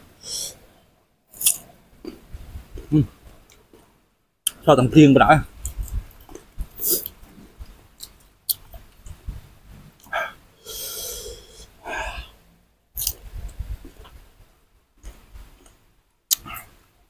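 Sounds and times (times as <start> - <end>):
breathy rush of air: 0.2 - 0.8, 10.2 - 12.4
mango being bitten and chewed: 1.4 - 2.2, 13.0 - 13.2.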